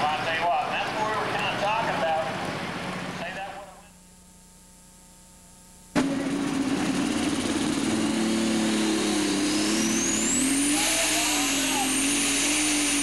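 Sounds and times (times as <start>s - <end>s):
diesel tractor engine droning: 0.0s - 3.6s, 6.0s - 13.0s
low hum and hiss: 0.0s - 6.0s
high turbo whine: 5.7s - 13.0s.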